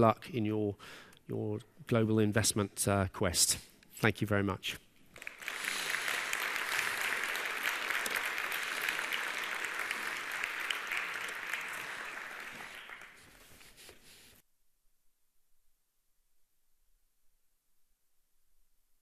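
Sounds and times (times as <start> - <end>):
audience applauding: 5.2 - 13.8.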